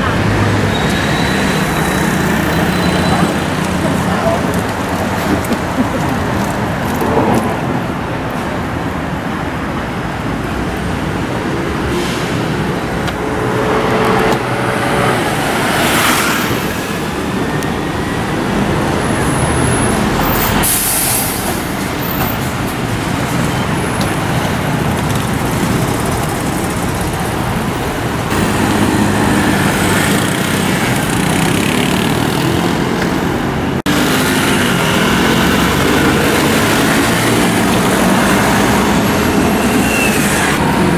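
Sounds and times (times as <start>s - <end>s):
scooter engines running: 0.0s - 7.4s, 22.5s - 40.9s
cars and truck passing: 0.0s - 40.9s
air brakes hissing: 20.4s - 21.8s.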